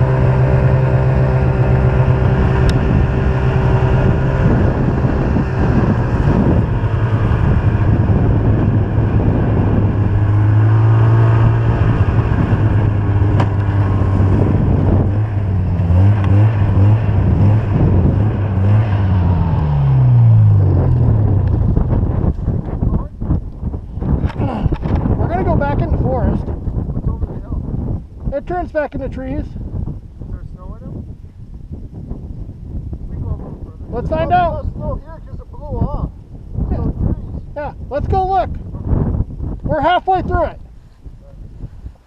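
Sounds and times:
snowmobile engine running: 0.0 - 23.0
track and wind noise: 0.0 - 42.0.

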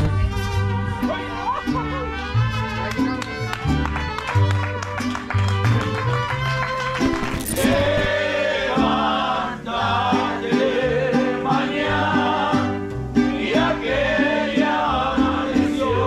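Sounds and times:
plucked bass line: 0.0 - 4.0, 7.0 - 9.0
strummed guitars: 0.0 - 16.0
people singing: 7.5 - 16.0.

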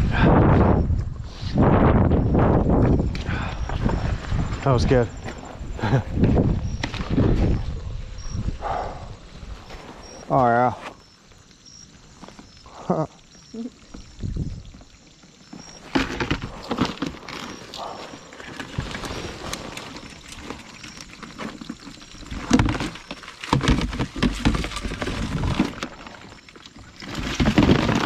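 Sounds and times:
crabs and net clattering in tub: 13.8 - 28.0.

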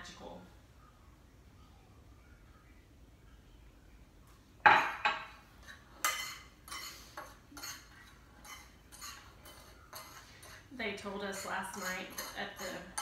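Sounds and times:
kitchenware clattering: 4.6 - 13.0
utensil scraping on a plate: 5.6 - 13.0.

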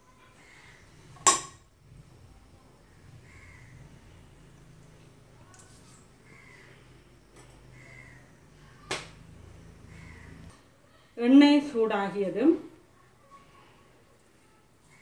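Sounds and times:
faint crow caws: 0.2 - 0.9, 2.9 - 4.2, 6.2 - 7.0, 7.6 - 8.9, 9.7 - 10.7.

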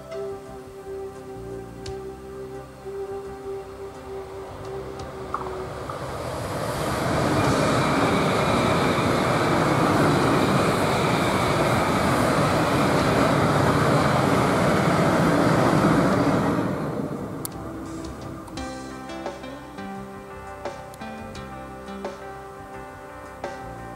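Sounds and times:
high-speed train passing: 2.4 - 23.9.

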